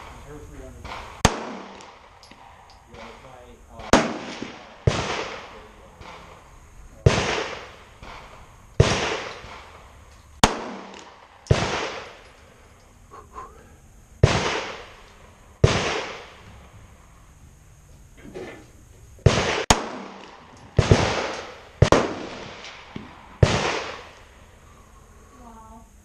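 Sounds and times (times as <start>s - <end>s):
pistol shots echoing: 0.8s - 12.3s, 14.2s - 16.5s, 19.2s - 24.3s.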